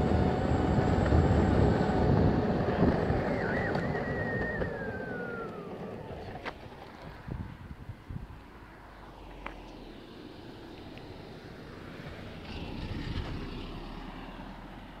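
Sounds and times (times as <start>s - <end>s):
longboard wheels rumbling on asphalt: 0.0s - 15.0s.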